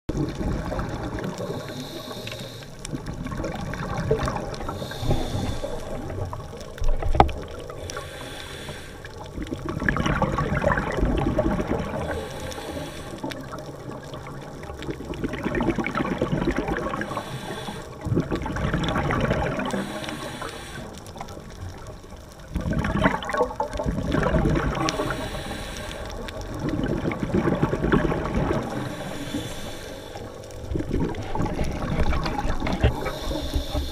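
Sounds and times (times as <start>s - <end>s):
diver breathing through regulator: 1.4s - 2.9s, 4.6s - 6.3s, 7.7s - 9.4s, 11.9s - 13.6s, 16.9s - 18.2s, 19.5s - 21.3s, 24.7s - 26.7s, 28.4s - 33.9s
bubbling exhalation: 9.3s - 12.3s, 13.4s - 17.4s, 18.0s - 20.3s, 22.5s - 25.5s, 26.2s - 29.7s, 30.6s - 33.9s.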